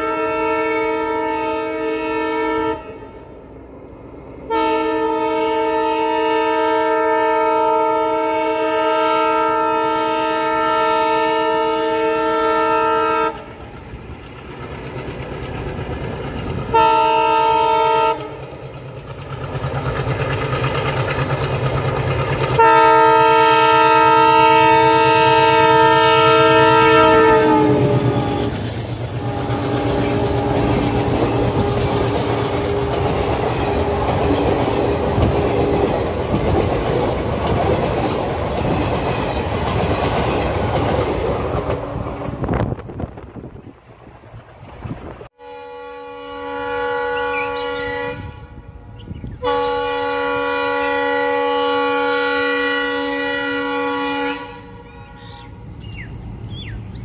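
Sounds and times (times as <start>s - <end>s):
locomotive horn blasts: 0.0s - 3.3s, 4.5s - 13.5s, 16.7s - 18.4s, 22.6s - 35.9s, 45.4s - 55.8s
train rumbling over rail joints: 0.0s - 57.0s.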